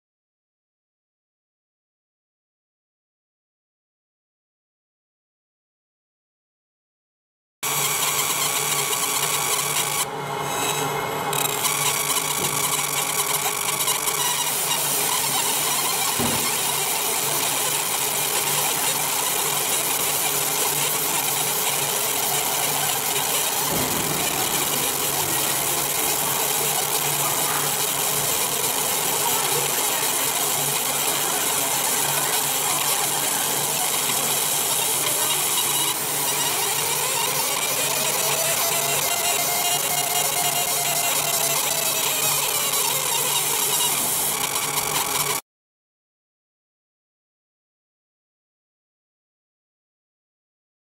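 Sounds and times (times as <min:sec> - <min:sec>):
laser engraving buzzing hiss: 0:07.6 - 0:45.4.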